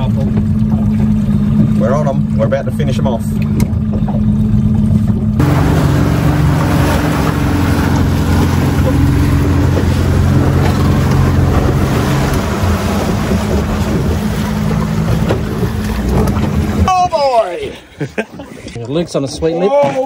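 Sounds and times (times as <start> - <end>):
boat motor running: 0.0 - 18.8
water rushing: 0.0 - 19.2
wind noise on microphone: 5.1 - 16.9.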